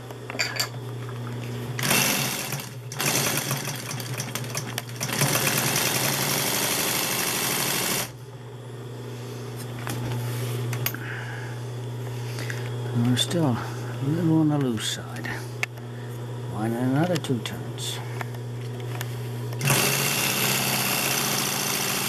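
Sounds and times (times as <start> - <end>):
steady low hum: 0.0 - 5.8, 8.0 - 20.6
sewing machine stitching: 1.8 - 8.1, 19.6 - 22.0.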